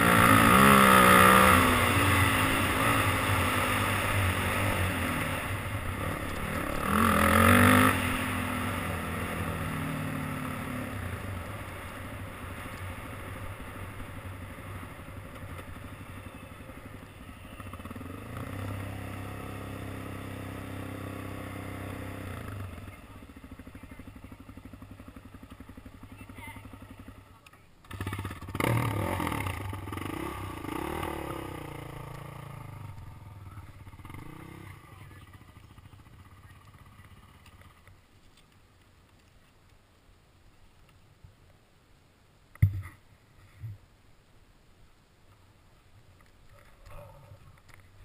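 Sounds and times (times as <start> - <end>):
dirt bike engine running: 0.0 - 38.1.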